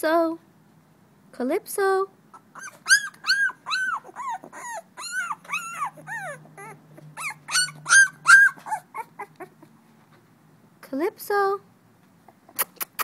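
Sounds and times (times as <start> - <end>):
puppy squealing: 2.3 - 9.8.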